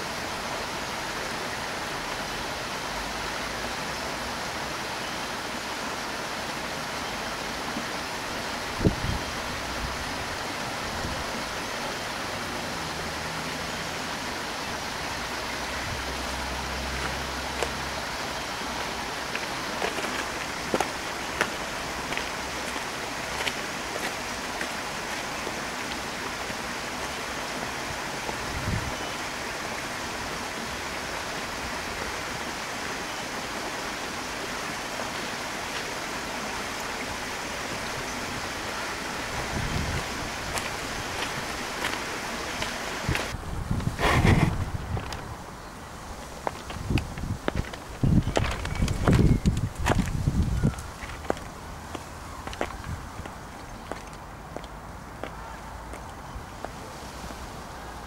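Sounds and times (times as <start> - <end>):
rushing outdoor ambience: 0.0 - 58.0
footsteps on a path: 17.0 - 28.9, 37.7 - 45.4, 46.1 - 56.9.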